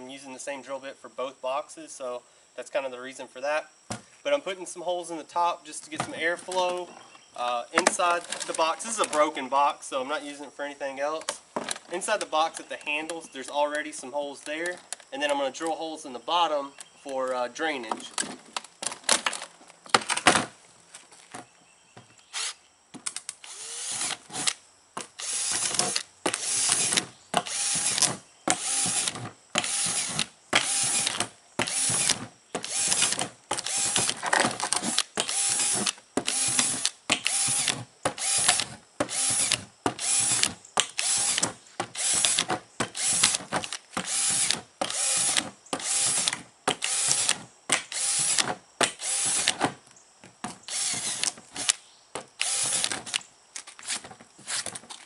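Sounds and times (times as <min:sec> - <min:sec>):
cordless drill boring plastic: 0:22.4 - 0:22.6, 0:23.4 - 0:24.6, 0:25.2 - 0:48.4, 0:49.0 - 0:49.6, 0:50.7 - 0:51.8, 0:52.4 - 0:53.2.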